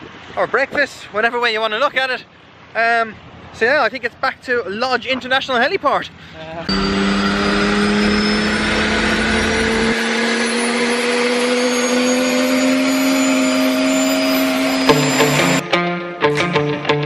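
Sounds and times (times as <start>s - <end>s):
helicopter engine whine and hum: 6.7s - 15.6s
music: 14.9s - 17.0s.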